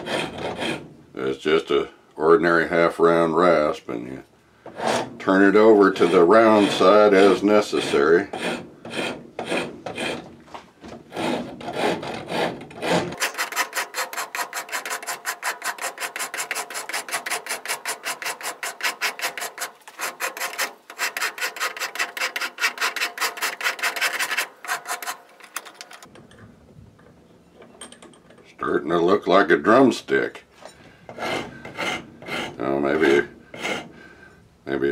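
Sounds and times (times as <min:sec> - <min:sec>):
rasp scraping wood: 0:00.0 - 0:01.0, 0:04.6 - 0:26.1, 0:31.1 - 0:34.1.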